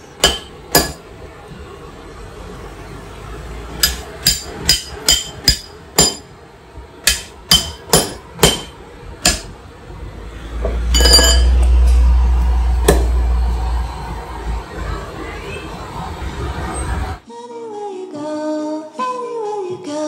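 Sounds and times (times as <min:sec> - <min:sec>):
loud low rumble: 0:09.8 - 0:17.2.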